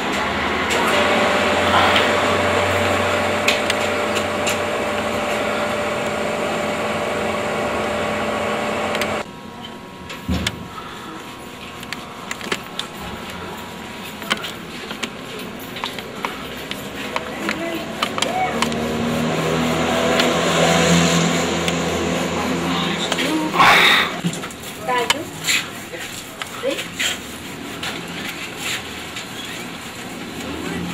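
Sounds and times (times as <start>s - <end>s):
mechanical drone: 0.0s - 9.3s, 16.7s - 24.3s.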